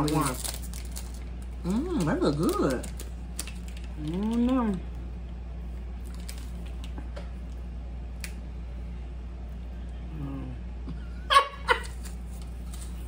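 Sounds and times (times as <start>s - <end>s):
snack package crinkling: 0.0s - 5.0s, 5.9s - 7.6s, 11.8s - 13.0s
steady low hum: 0.0s - 13.0s
person humming: 10.1s - 10.7s.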